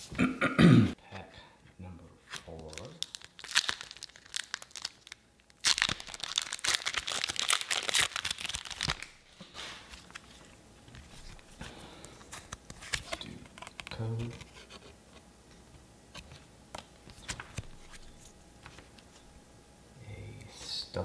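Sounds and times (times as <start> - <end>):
wrapper rustling: 2.3 - 11.6
foil wrapper crackling: 2.5 - 9.3.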